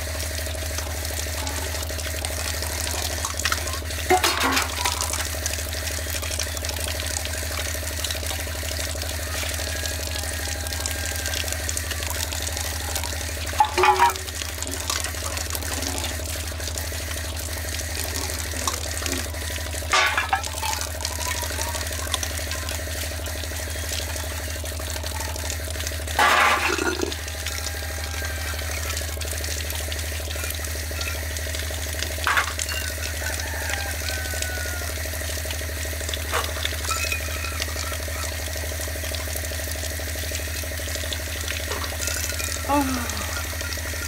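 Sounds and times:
water running from tap: 0.0s - 44.0s
metal dishes clattering: 4.1s - 5.1s, 13.6s - 14.3s, 19.9s - 20.8s, 26.2s - 27.2s.

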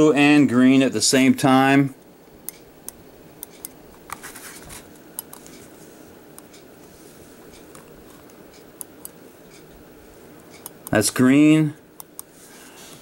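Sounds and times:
faint steady background noise: 0.0s - 13.0s.

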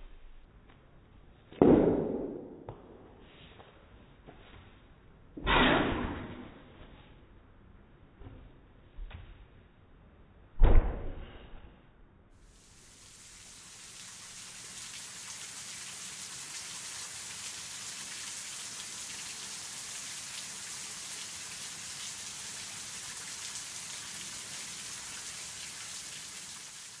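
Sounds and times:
high-pitched hiss: 12.4s - 16.8s.

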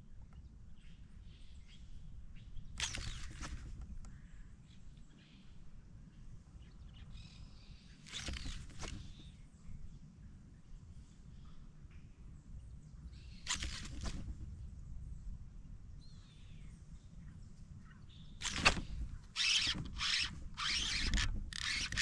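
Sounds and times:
fishing reel rasping bursts: 18.4s - 18.8s, 19.4s - 22.0s.

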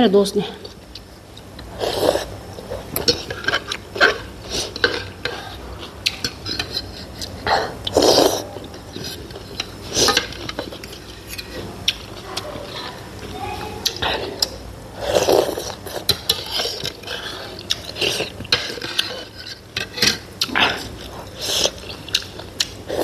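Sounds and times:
person slurping soup: 1.7s - 5.7s, 6.3s - 13.0s, 13.8s - 22.2s
cutlery scraping ceramic bowl: 15.6s - 22.0s.

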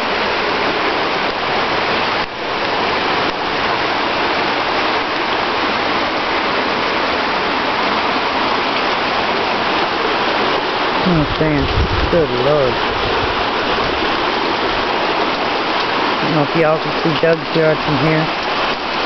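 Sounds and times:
rain hissing on water: 0.0s - 19.0s
running floodwater rushing: 0.0s - 19.0s.

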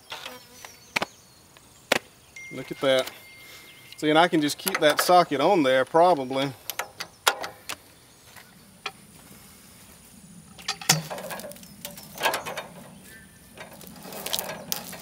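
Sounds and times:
clicks and clanks of sawmill: 10.6s - 12.9s.

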